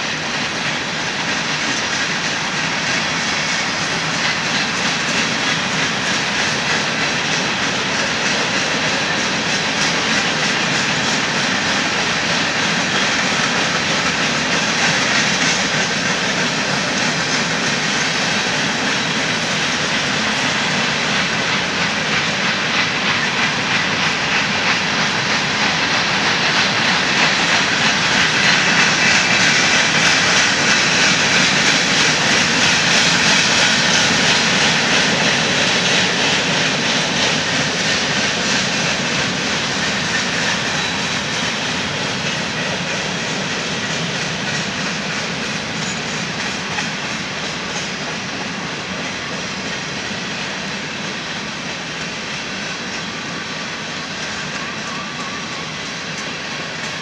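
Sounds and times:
freight train wheels on rail: 0.0s - 57.0s.

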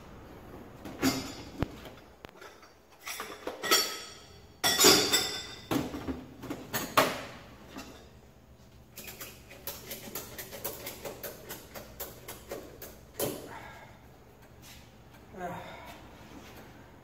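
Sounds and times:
metal tools knocking and rattling: 0.8s - 7.1s.

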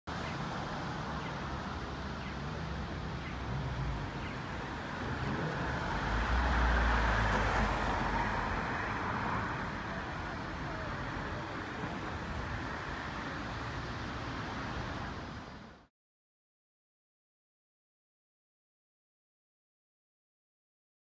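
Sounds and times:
passing cars hum: 0.1s - 15.9s
vehicle passing close: 3.6s - 9.9s.

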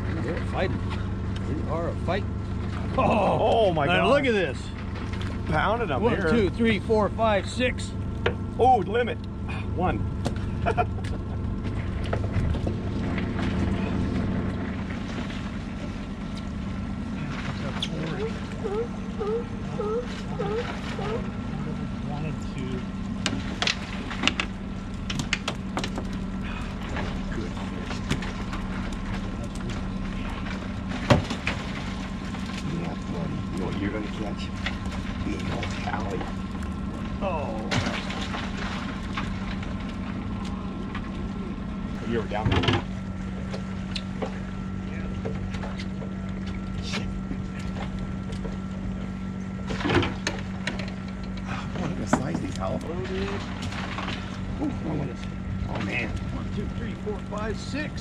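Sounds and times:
outboard motor idling: 0.0s - 58.0s
steady low hum: 0.0s - 58.0s
fishing gear clicking on metal boat: 49.6s - 52.7s.

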